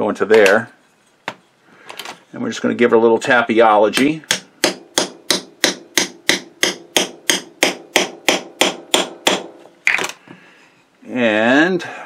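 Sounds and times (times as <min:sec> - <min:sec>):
hammer tapping metal punch: 0:03.9 - 0:09.6.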